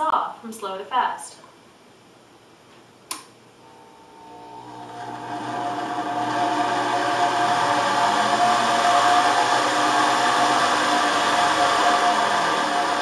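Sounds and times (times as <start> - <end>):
switch click: 3.1 - 3.4
band saw motor running: 3.6 - 13.0.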